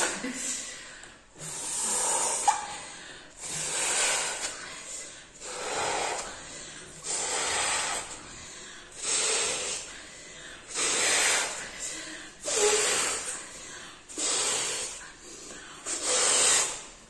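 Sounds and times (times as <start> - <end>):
breathy puffs into balloon: 1.3 - 17.0.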